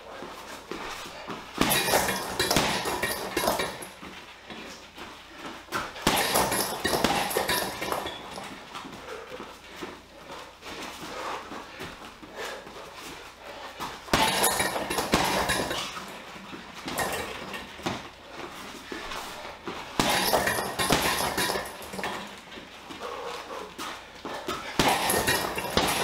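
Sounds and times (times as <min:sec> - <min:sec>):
boxing gloves hitting heavy bag: 0:00.1 - 0:04.8, 0:05.7 - 0:09.9, 0:11.1 - 0:26.0.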